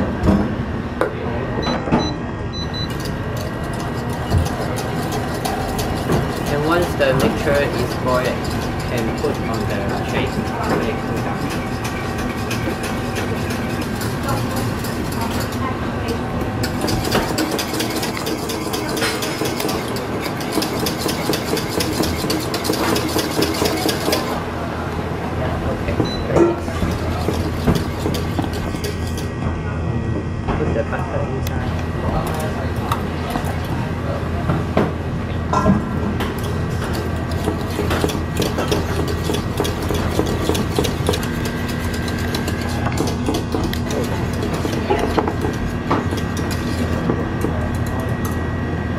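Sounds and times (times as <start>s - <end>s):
steady low hum: 0.0s - 48.9s
whisk scraping metal saucepan: 2.9s - 24.4s, 26.6s - 29.3s, 36.2s - 48.0s.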